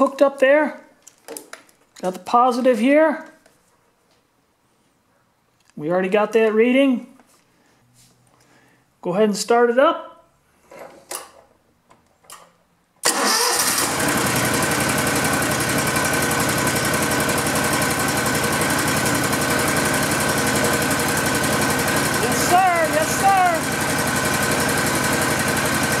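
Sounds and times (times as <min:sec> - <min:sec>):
small engine starting and running: 0:13.0 - 0:26.0.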